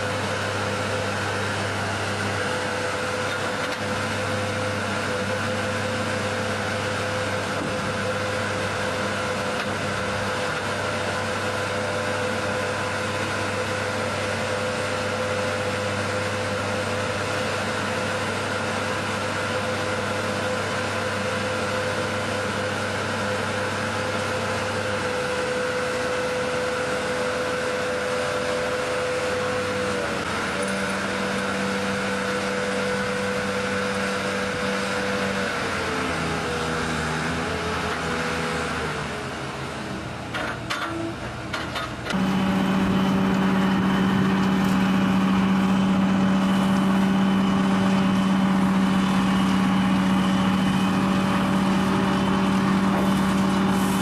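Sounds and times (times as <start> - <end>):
hydraulic power unit whining: 19.0 - 54.0.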